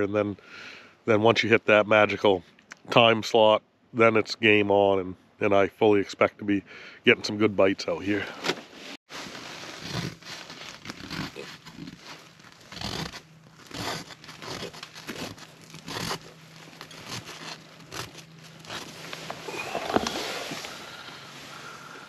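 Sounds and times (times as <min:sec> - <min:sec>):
plastic crinkling: 0:09.1 - 0:21.1
fingertip scratching frosty plastic: 0:09.4 - 0:20.7.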